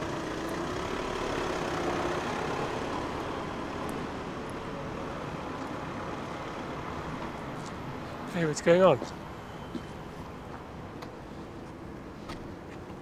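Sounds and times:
car engine pulling away: 0.0s - 8.2s
street traffic hum: 0.0s - 13.0s.

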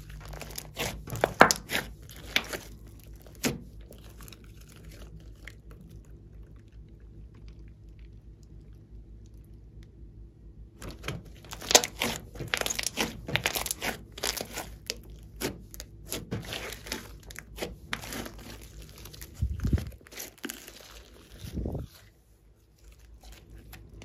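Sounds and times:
slime squishing by hand: 0.0s - 10.0s, 10.8s - 24.0s.

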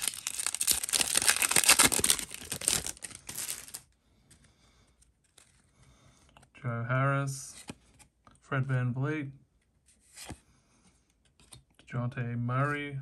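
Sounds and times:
plastic wrapper crinkling: 0.0s - 3.8s.

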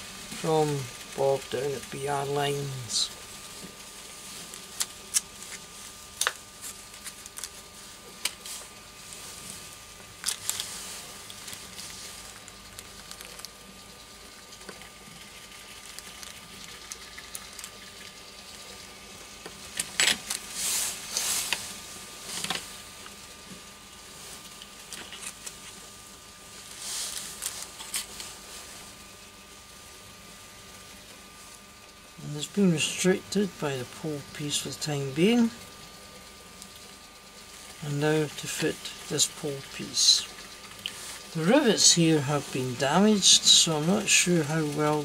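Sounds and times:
plastic packet rustling: 4.4s - 18.4s.

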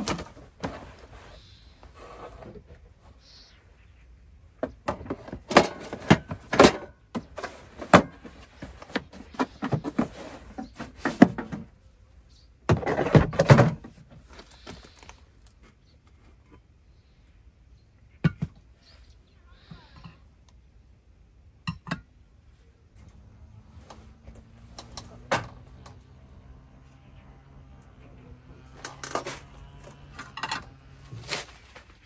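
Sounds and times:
objects being handled: 4.6s - 11.7s.

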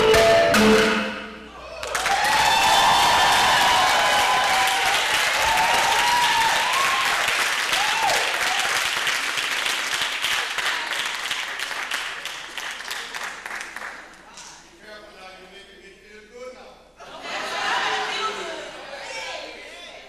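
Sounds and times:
whoops from audience: 1.6s - 8.8s
audience applauding and cheering: 1.6s - 14.2s.

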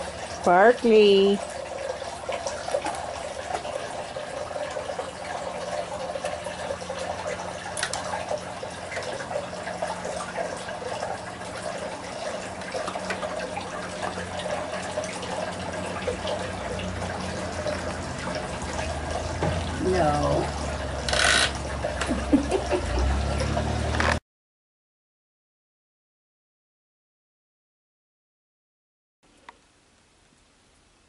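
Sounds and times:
running trickling water: 0.0s - 24.2s.

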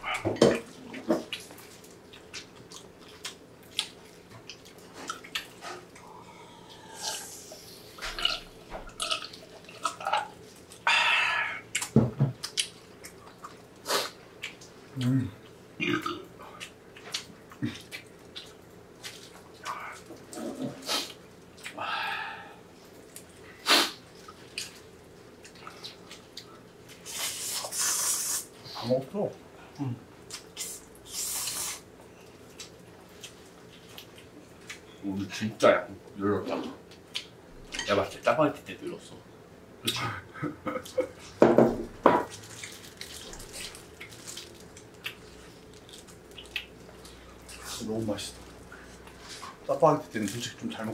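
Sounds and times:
wet chewing: 1.2s - 6.7s, 42.3s - 47.8s.

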